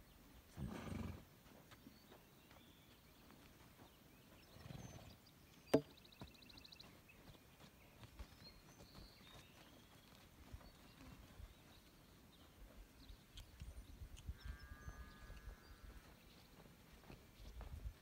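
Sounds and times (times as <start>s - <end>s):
hoof steps on dirt: 0.8s - 18.0s
hoof knocking against pole: 5.7s - 6.0s.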